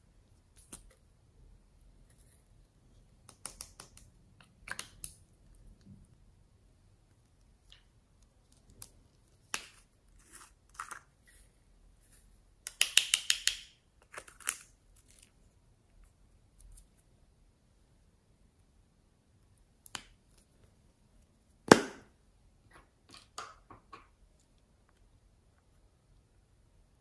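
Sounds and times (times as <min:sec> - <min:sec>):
plastic clicks and snaps: 0:12.6 - 0:14.7.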